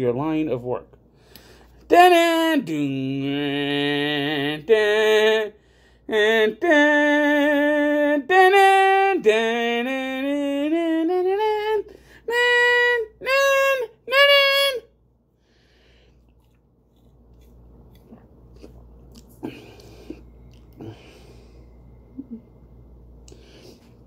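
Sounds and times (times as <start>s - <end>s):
person singing unaccompanied: 1.8s - 15.0s.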